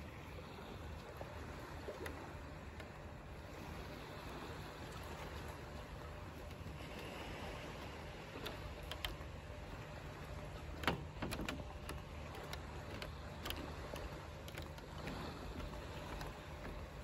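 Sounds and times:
wood creaking: 7.8s - 17.0s.

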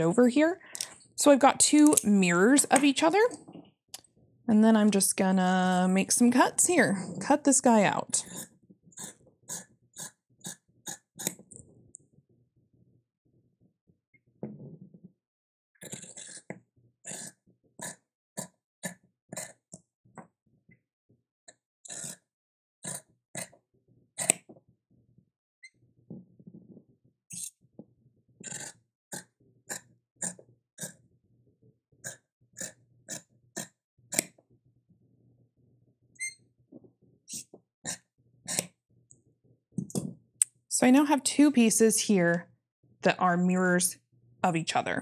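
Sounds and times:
scissors snipping fabric: 10.9s - 11.4s, 24.2s - 24.5s, 32.6s - 34.4s, 37.3s - 38.7s.

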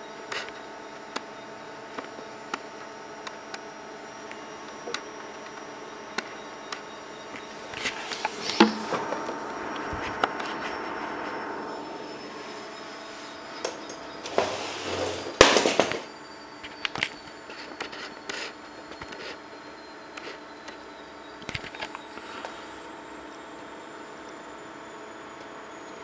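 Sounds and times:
projector cooling fan hum: 0.0s - 16.4s.

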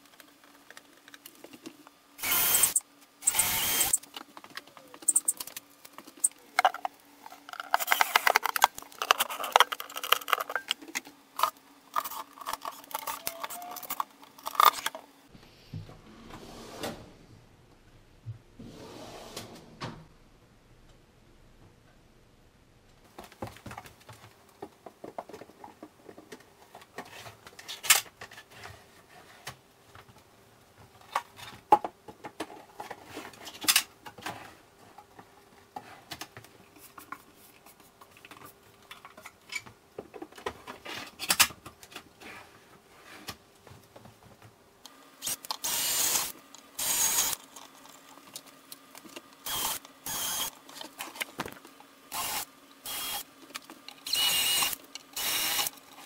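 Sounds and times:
cordless drill bursts: 2.2s - 4.0s, 45.2s - 47.4s, 49.4s - 50.5s, 52.1s - 53.2s, 54.1s - 55.7s.

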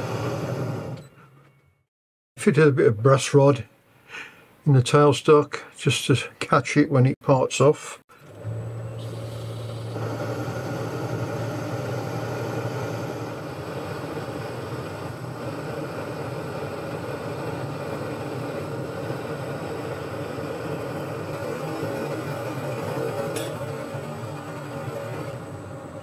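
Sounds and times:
lathe motor hum: 8.2s - 26.0s
tool cutting spinning metal bar: 9.0s - 25.6s.

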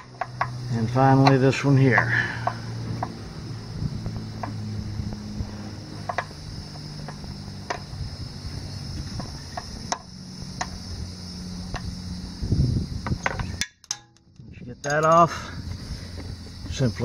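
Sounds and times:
handling rumble: 0.0s - 17.0s
steady low hum: 0.0s - 17.0s
allen wrench metal clicks: 13.2s - 15.4s.

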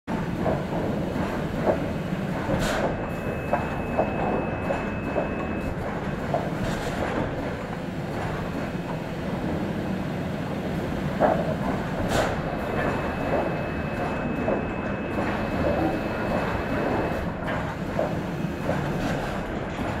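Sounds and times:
steady machine hum: 0.1s - 20.0s
boards clattering on conveyors: 0.3s - 8.8s
thin steady whine: 12.5s - 17.4s.

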